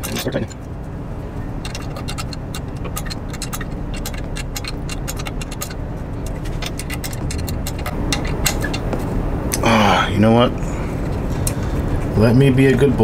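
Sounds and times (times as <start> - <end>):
steady low rumble: 0.0 - 13.0
metallic clicks of hand tools: 1.6 - 8.9.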